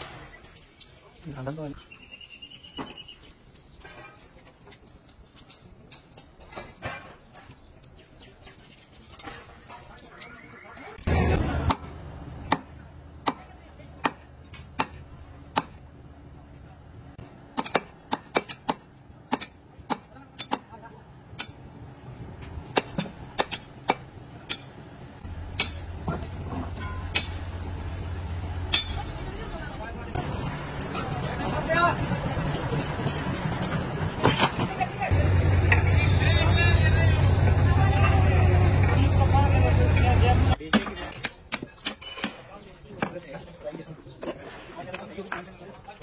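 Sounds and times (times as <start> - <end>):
hand tools clinking on metal: 3.8 - 10.5, 30.2 - 34.7.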